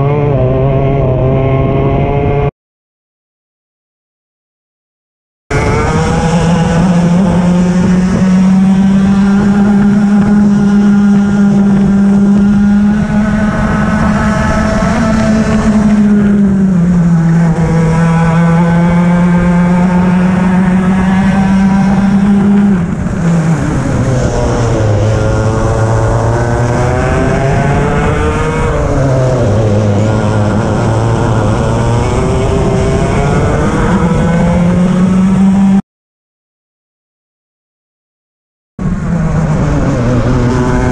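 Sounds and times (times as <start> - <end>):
kart engine revving high: 0.0 - 2.5, 5.5 - 35.8, 38.8 - 40.9
wind noise: 5.5 - 35.8, 38.8 - 40.9.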